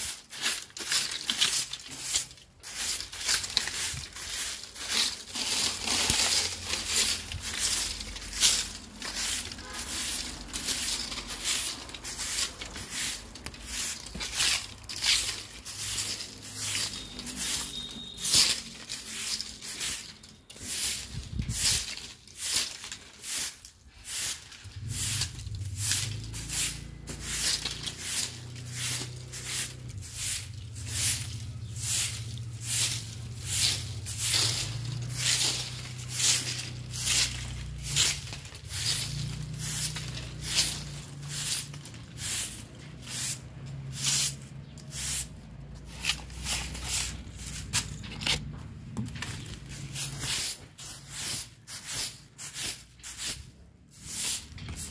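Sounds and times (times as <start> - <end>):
broom sweeping dry leaves on concrete: 0.0 - 54.9.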